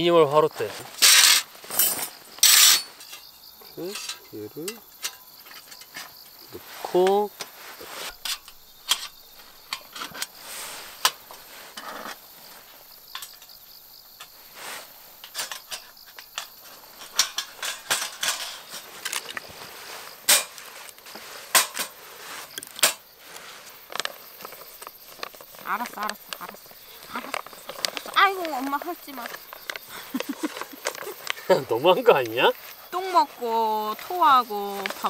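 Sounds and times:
metal fire pit clicks and clinks: 0:01.0 - 0:06.2, 0:07.0 - 0:10.4, 0:13.0 - 0:13.6, 0:15.2 - 0:19.5, 0:20.2 - 0:22.0, 0:22.6 - 0:23.1.

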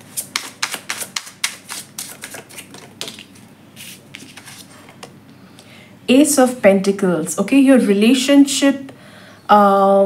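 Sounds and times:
cards being shuffled: 0:00.0 - 0:05.1.

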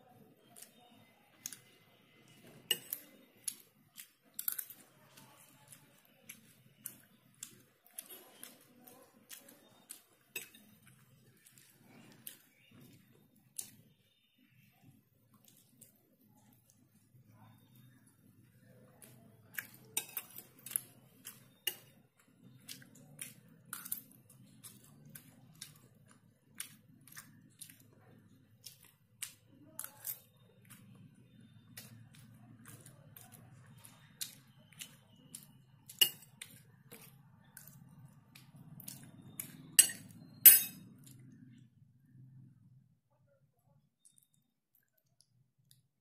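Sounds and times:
spoon clinking on ceramic plate: 0:02.7 - 0:03.0, 0:39.8 - 0:40.8.

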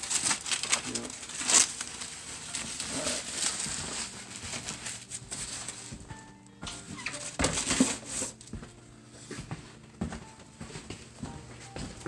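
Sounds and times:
plastic wrap crinkling: 0:00.0 - 0:08.5.

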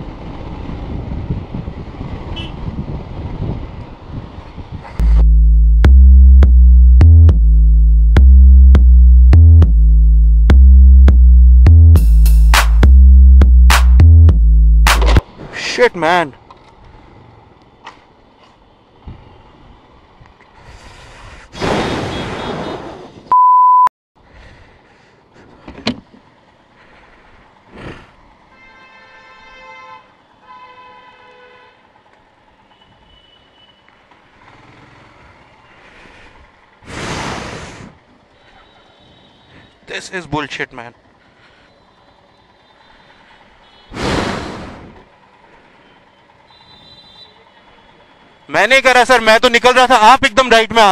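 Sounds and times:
vehicle horn: 0:02.3 - 0:02.6, 0:22.0 - 0:22.8, 0:28.5 - 0:31.9, 0:32.6 - 0:34.0, 0:38.4 - 0:39.8, 0:41.7 - 0:44.0, 0:45.8 - 0:48.4
sharp knock: 0:14.9 - 0:15.2
high censor bleep: 0:23.3 - 0:23.9
low traffic noise: 0:24.2 - 0:50.9.

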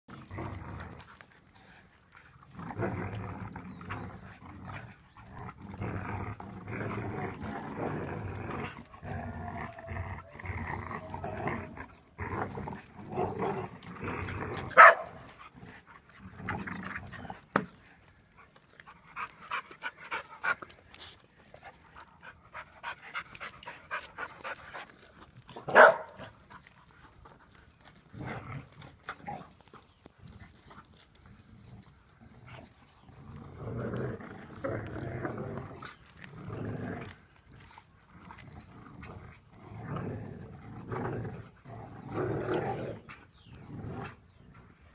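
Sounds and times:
dogs growling in play: 0:00.1 - 0:44.9
dog barking sharply: 0:14.8 - 0:15.1, 0:25.7 - 0:26.1.

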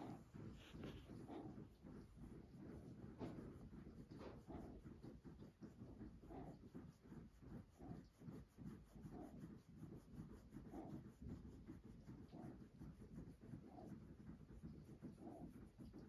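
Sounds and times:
hand rubbing dog fur: 0:00.0 - 0:16.0.

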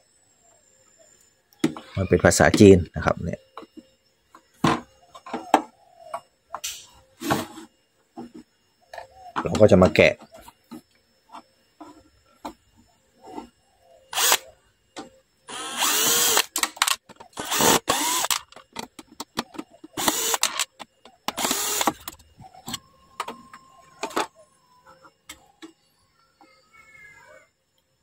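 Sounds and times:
cordless drill running: 0:14.2 - 0:14.4, 0:15.5 - 0:18.4, 0:20.0 - 0:20.6, 0:21.4 - 0:22.2.

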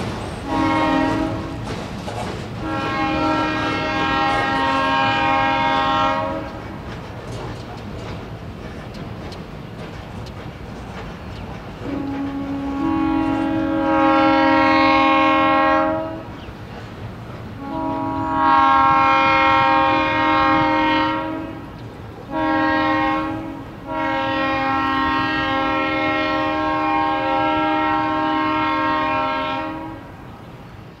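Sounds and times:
locomotive air horn blasts: 0:00.4 - 0:01.6, 0:02.6 - 0:06.8, 0:11.8 - 0:16.4, 0:17.6 - 0:30.1.

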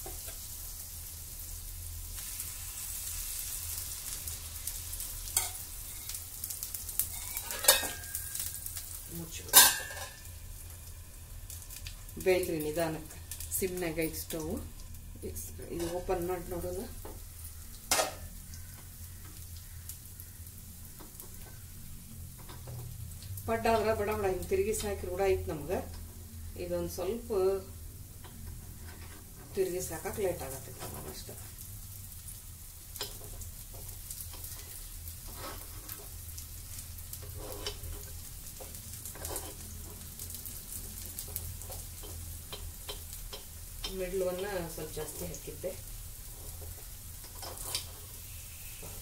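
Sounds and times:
batter sizzling in pan: 0:00.0 - 0:49.0
steel spoon scraping a pan: 0:07.0 - 0:08.7, 0:09.5 - 0:10.2, 0:28.6 - 0:29.8, 0:33.0 - 0:36.2, 0:37.1 - 0:40.1, 0:46.2 - 0:49.0.

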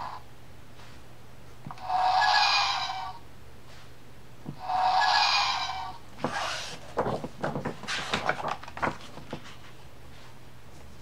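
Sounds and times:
paper rustling: 0:06.2 - 0:10.3.

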